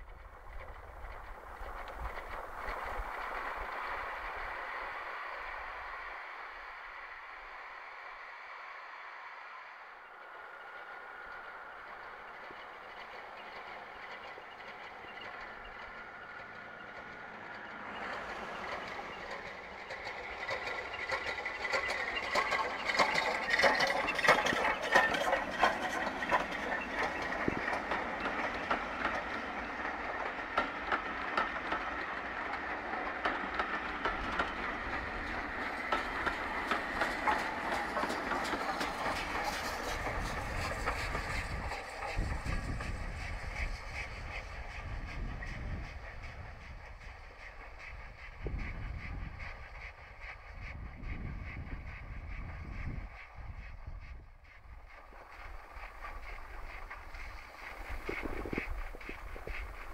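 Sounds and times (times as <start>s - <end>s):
steam locomotive exhaust beats: 0.0s - 59.9s
wheels clattering over rail joints: 10.4s - 53.7s, 54.4s - 59.9s.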